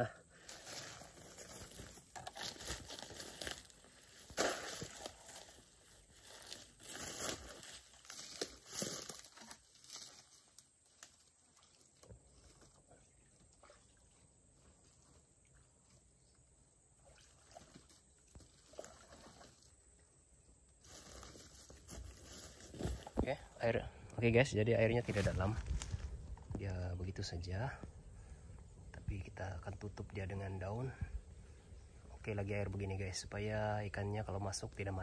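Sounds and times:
footsteps through grass and dry leaves: 0:00.4 - 0:11.5, 0:20.8 - 0:23.3, 0:24.9 - 0:26.6.

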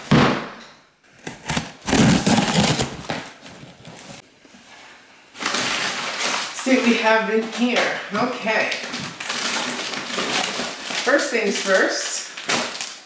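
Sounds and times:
scissors cutting packing tape: 0:01.2 - 0:03.3
cardboard scraping and rustling: 0:01.2 - 0:04.2.

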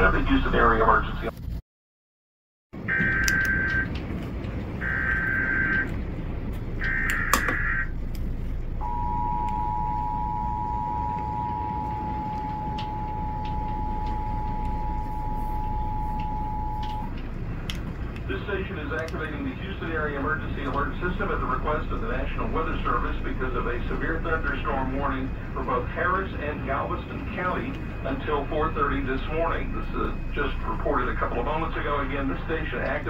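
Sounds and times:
two-tone attention signal: 0:02.9 - 0:03.9, 0:08.8 - 0:17.1.

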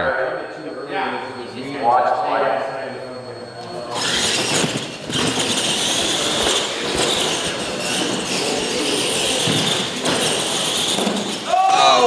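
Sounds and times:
toy truck electric motors whining: 0:03.6 - 0:12.0.

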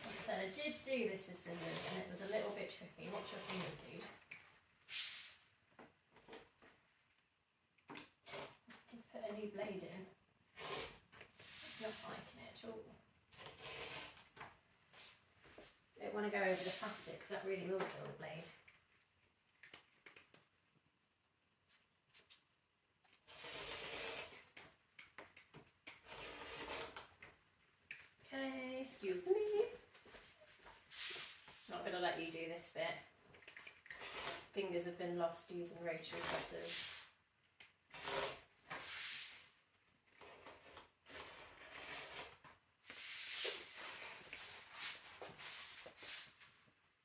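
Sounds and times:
rotary cutter cutting fabric: 0:01.5 - 0:03.9, 0:13.4 - 0:14.2, 0:23.3 - 0:24.6, 0:25.9 - 0:27.1, 0:36.1 - 0:36.8, 0:37.9 - 0:38.5.

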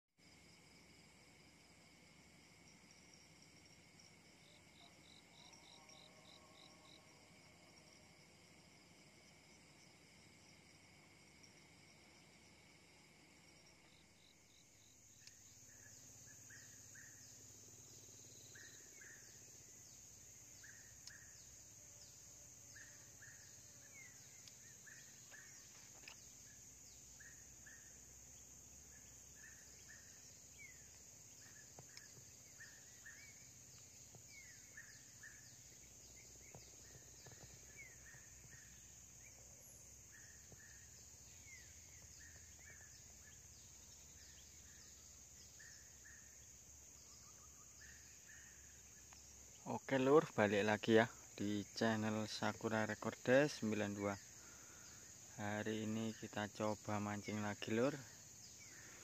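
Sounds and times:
insects droning: 0:00.2 - 0:59.0
bird chirping: 0:14.2 - 0:59.0.

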